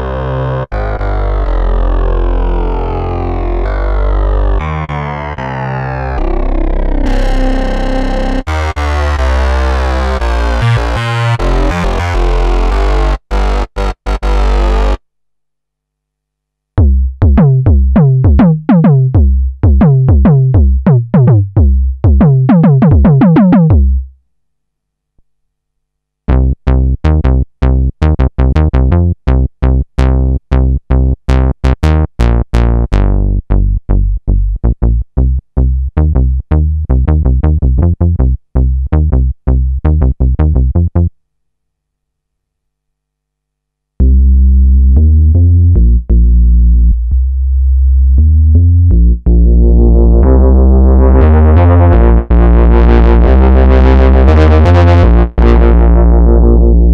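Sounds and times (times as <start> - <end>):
synth bass line with filter sweep: 0.0 - 15.0, 16.8 - 24.1, 26.3 - 41.1, 44.0 - 56.9
synthesizer notes sweeping downward: 0.0 - 15.0, 16.8 - 24.0, 48.0 - 56.9.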